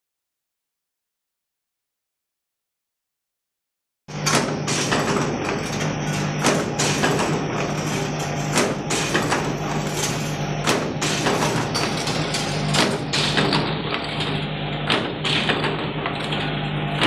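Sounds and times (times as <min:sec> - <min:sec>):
machine humming: 0:04.1 - 0:17.0.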